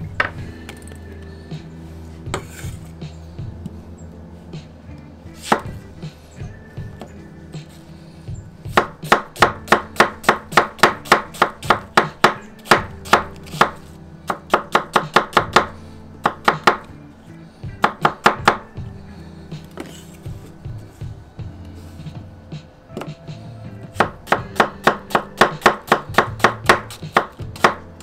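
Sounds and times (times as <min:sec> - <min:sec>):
knife chopping on wooden board: 0:05.5 - 0:05.7, 0:08.7 - 0:16.9, 0:24.0 - 0:27.8.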